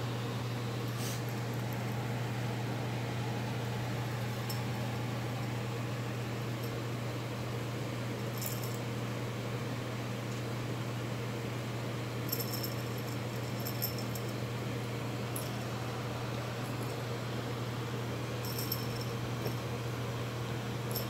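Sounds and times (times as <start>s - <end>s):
small jingle bell tinkling: 8.4s - 8.8s, 12.3s - 14.4s, 18.4s - 19.7s.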